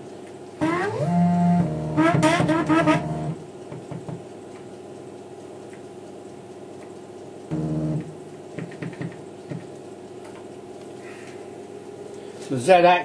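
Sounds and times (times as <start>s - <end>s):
low machine hum: 0.0s - 13.0s
stepper motor whine: 0.6s - 3.4s, 7.5s - 8.1s.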